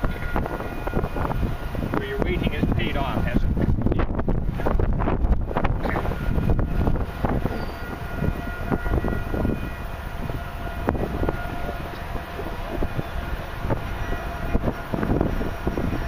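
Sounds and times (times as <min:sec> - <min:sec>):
wind buffeting microphone: 0:00.0 - 0:16.0
faint horn-like tone: 0:06.1 - 0:16.0.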